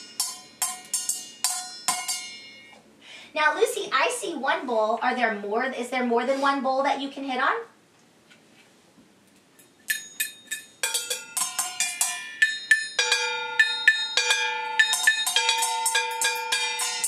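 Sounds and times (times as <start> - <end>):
sticks tapping steel bowls ringing: 0.0 - 2.8, 9.6 - 17.0.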